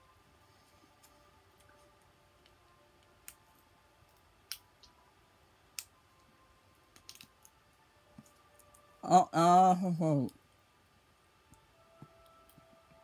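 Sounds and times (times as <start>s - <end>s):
faint sharp clicks of eating candy: 6.9s - 7.6s.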